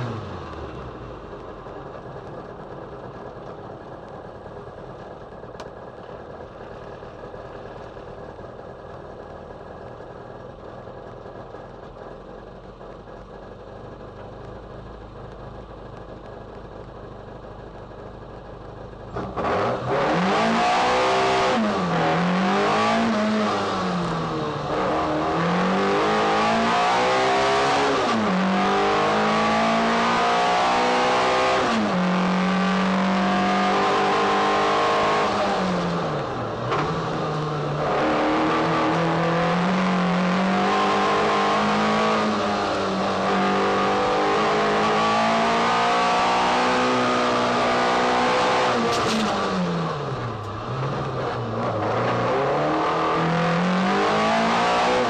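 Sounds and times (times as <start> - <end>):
car engine revving: 19.1 - 55.0.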